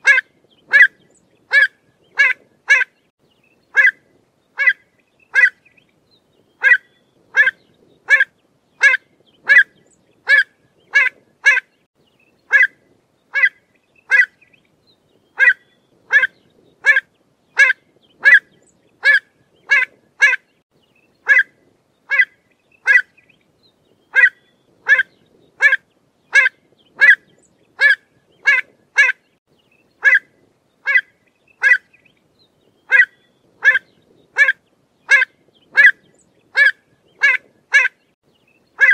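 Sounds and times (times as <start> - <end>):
bird calling sharp notes: 6.6 - 11.7, 15.4 - 17.0, 24.1 - 29.2, 32.9 - 38.0.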